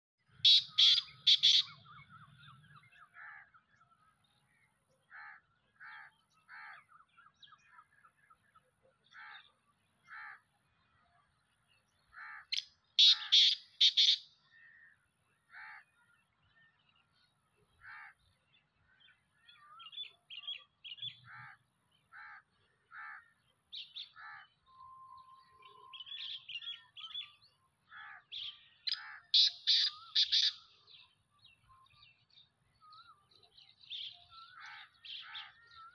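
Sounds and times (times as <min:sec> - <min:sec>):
harsh bird call: 0:00.4 - 0:02.1, 0:12.4 - 0:14.2, 0:28.1 - 0:30.6.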